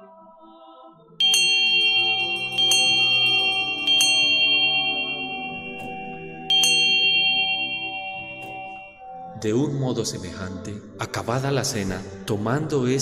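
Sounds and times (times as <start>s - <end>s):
altar bell ringing: 1.2s - 9.4s.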